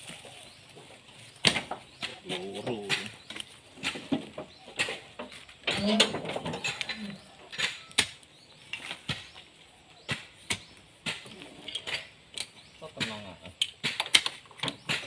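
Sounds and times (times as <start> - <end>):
sharp clicks and knocks: 10.1 - 15.0.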